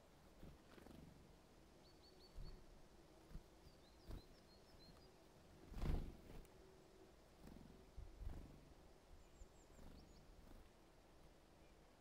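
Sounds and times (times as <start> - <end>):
small songbirds chirping: 0.0 - 6.4, 7.3 - 12.0.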